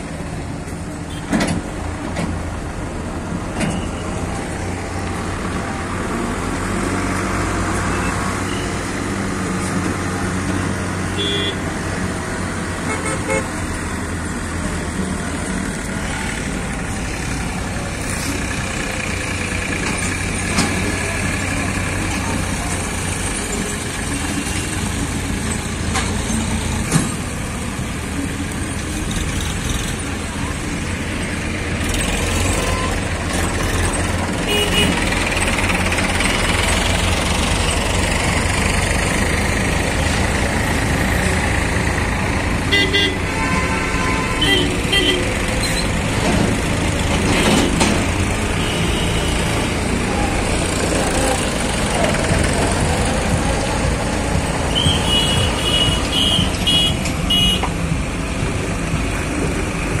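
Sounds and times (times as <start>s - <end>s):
diesel engines rumbling: 0.0s - 60.0s
vehicle horn: 11.2s - 11.6s, 12.8s - 13.5s, 34.5s - 35.0s, 42.7s - 45.3s, 54.7s - 57.7s.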